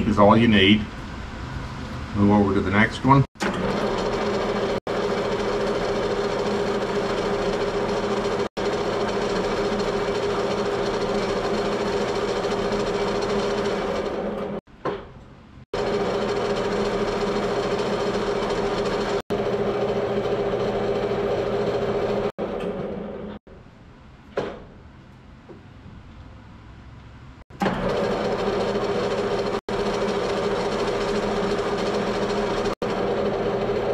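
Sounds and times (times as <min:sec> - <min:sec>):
lathe running with hum: 0:03.4 - 0:14.6, 0:15.8 - 0:23.4, 0:27.5 - 0:33.9.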